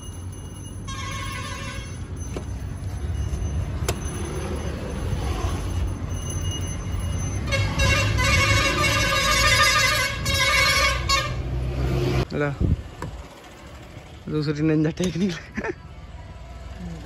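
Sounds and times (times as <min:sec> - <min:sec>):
vehicle horn tooting: 0:00.9 - 0:02.1, 0:07.4 - 0:11.5.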